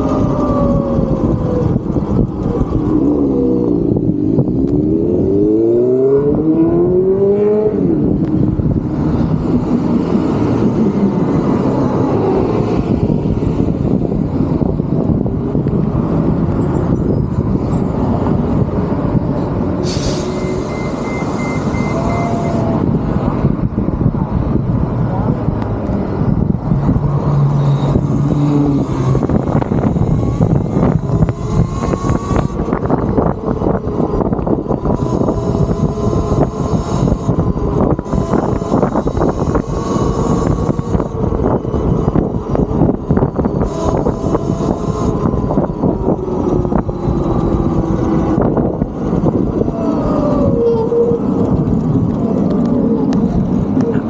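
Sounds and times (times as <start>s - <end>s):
idling traffic rumble: 0.0s - 54.0s
wind buffeting microphone: 0.0s - 54.0s
bus air brake hiss: 19.8s - 22.6s
short beeps: 20.2s - 22.7s.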